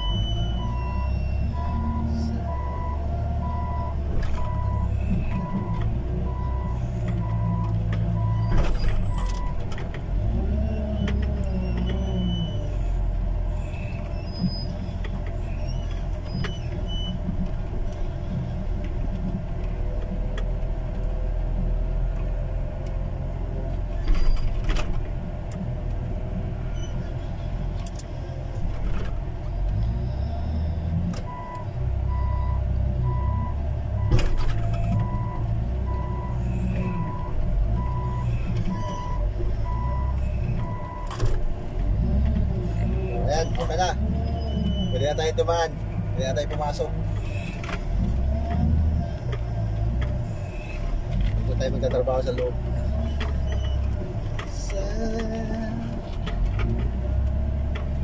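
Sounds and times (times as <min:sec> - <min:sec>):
reversing alarm beeping: 0:00.0 - 0:08.6
heavy machine engine running: 0:00.0 - 0:58.0.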